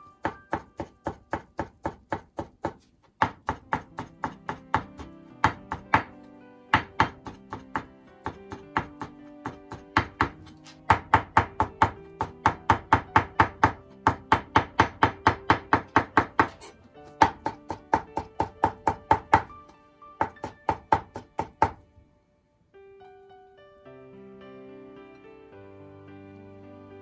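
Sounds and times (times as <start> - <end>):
background music: 0.0 - 27.0
knife chopping on wooden board: 0.2 - 6.2, 6.8 - 21.8.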